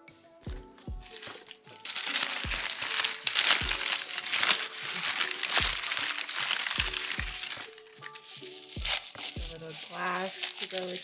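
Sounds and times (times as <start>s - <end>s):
soft music with low beat: 0.0s - 11.0s
newspaper crinkling and rustling: 0.8s - 11.0s.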